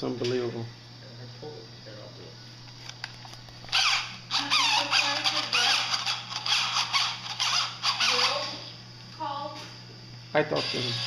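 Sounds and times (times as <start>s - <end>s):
cordless drill motor whine: 2.8s - 8.7s, 10.4s - 11.0s.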